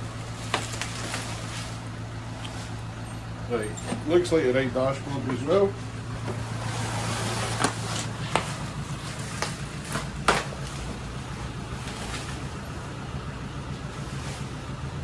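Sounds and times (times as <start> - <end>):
bubble wrap rustling and crackling: 0.0 - 3.0
steady low hum: 0.0 - 15.0.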